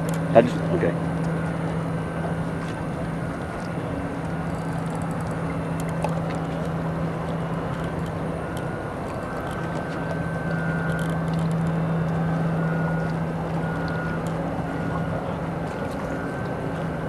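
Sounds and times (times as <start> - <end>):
boat motor humming: 0.0 - 17.0
water noise: 0.0 - 17.0
wind: 0.0 - 17.0.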